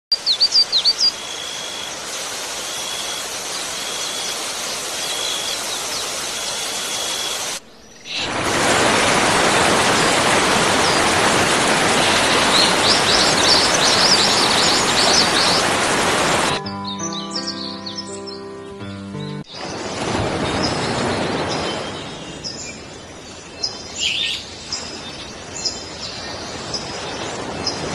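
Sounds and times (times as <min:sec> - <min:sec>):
birds chirping: 0:00.1 - 0:08.4, 0:11.9 - 0:27.9
waterfall rushing: 0:00.2 - 0:16.6.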